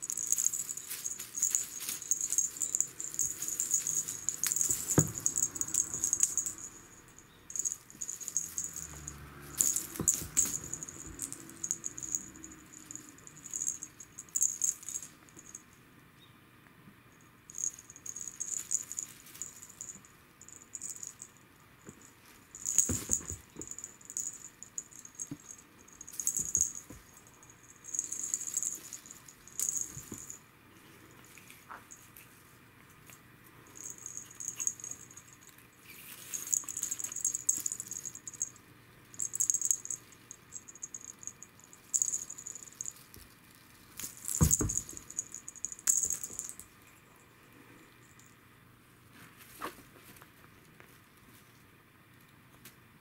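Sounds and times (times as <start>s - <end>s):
metallic streamers crinkling: 0.0s - 15.5s.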